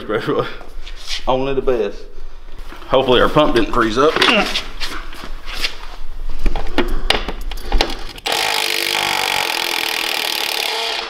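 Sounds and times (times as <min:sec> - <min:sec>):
impact wrench hammering: 0:08.3 - 0:11.0.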